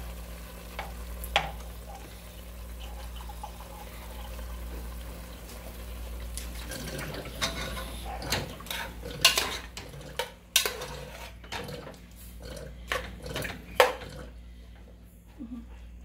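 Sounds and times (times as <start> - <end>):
metal spoon scraping pot: 8.6 - 11.6.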